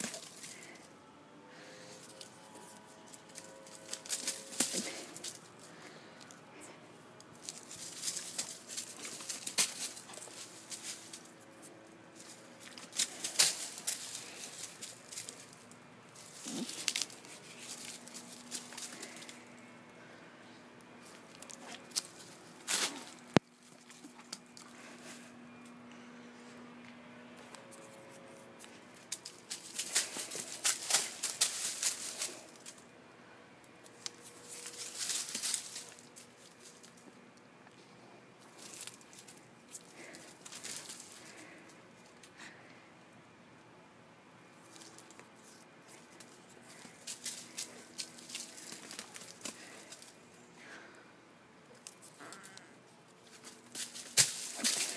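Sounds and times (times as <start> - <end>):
dry leaves rustling and crunching: 0.0 - 0.9, 1.5 - 6.3, 7.2 - 19.5, 21.0 - 25.2, 27.6 - 32.9, 33.8 - 37.1, 38.4 - 42.1, 44.6 - 50.4, 51.8 - 54.9.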